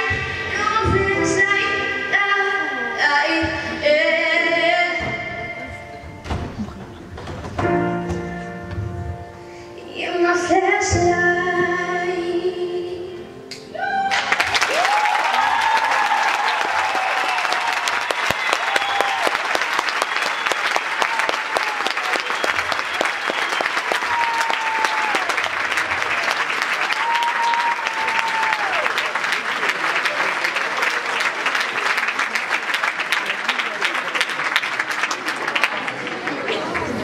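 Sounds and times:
keyboard: 0.0s - 13.8s
audience applause and cheering: 13.8s - 37.0s.

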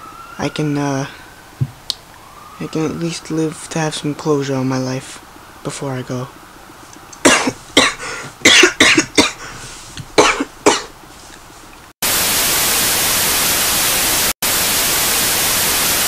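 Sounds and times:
loud static hiss: 3.0s - 16.0s
man coughing hard: 7.2s - 9.5s, 10.2s - 10.9s.

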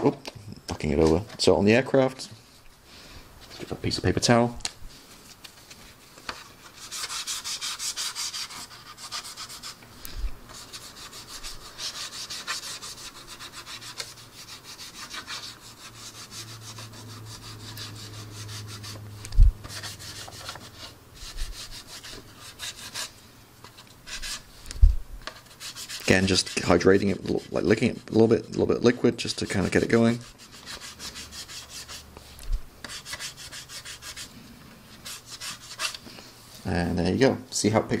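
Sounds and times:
paper towel rubbing plastic: 25.4s - 32.0s.

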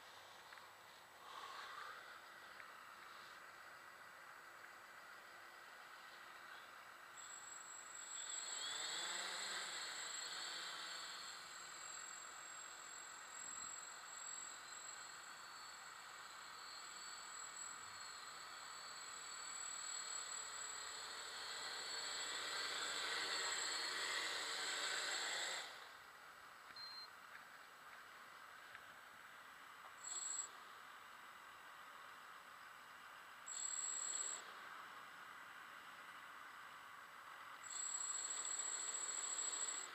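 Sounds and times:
drone motors whining: 7.2s - 25.9s.

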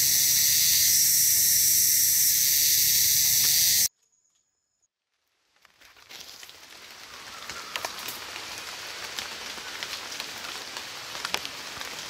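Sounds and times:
high-pitched insect chorus: 0.0s - 3.9s.

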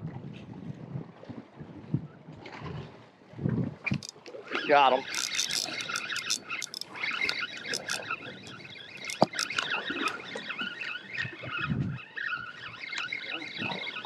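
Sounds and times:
fishing reel whirring and clicking: 3.9s - 10.3s.

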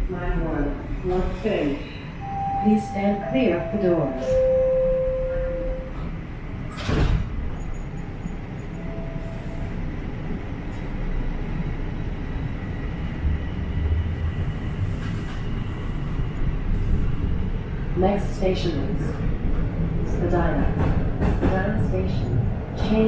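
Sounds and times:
subway train rolling rumble: 0.0s - 23.0s
train doors knocking shut: 6.7s - 7.5s.

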